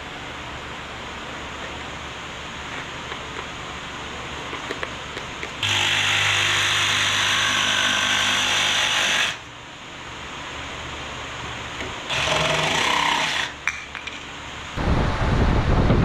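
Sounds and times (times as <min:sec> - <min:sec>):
jigsaw cutting plywood: 0:05.6 - 0:09.4, 0:12.1 - 0:13.5.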